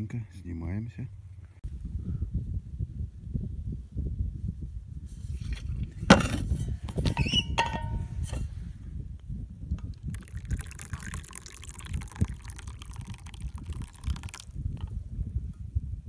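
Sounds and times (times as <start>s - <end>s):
thermos squeak: 7.1s - 7.6s
tea pouring into cup: 9.8s - 15.1s.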